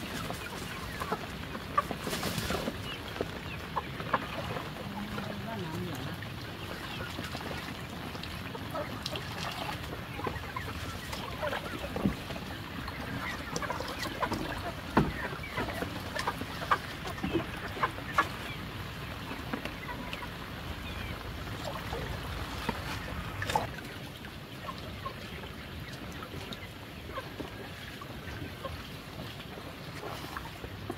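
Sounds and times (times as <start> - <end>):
chickens clucking: 0.0 - 30.9.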